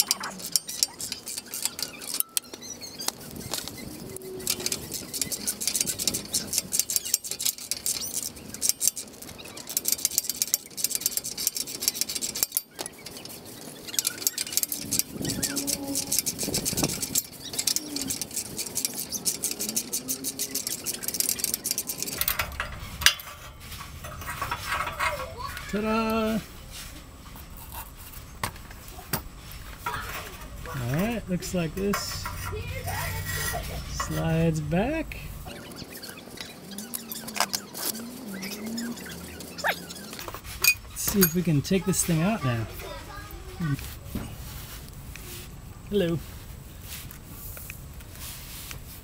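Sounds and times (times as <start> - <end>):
ratchet wrench clicking: 0.0 - 23.4.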